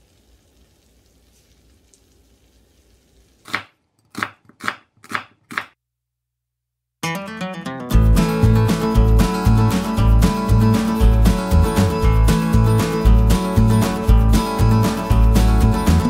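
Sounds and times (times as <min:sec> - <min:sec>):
knife chopping on wooden board: 0:03.5 - 0:05.8
music: 0:07.0 - 0:16.0.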